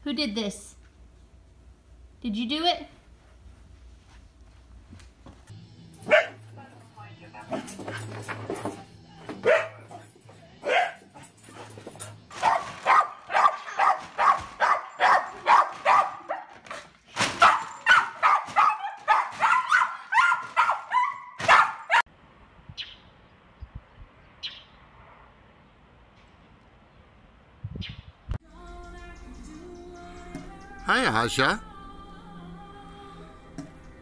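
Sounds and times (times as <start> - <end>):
dog barking sharply: 6.1 - 6.4, 12.3 - 16.8, 17.4 - 22.0.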